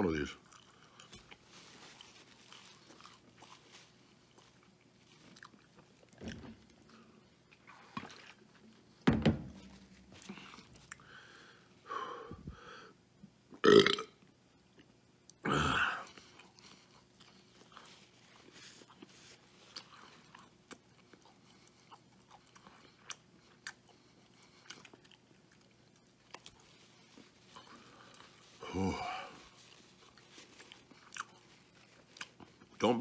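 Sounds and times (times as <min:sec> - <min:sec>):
quiet chewing: 0:00.3 - 0:09.0, 0:09.7 - 0:11.7, 0:14.6 - 0:15.4, 0:16.0 - 0:32.8
man burping: 0:13.6 - 0:14.1, 0:15.4 - 0:16.1.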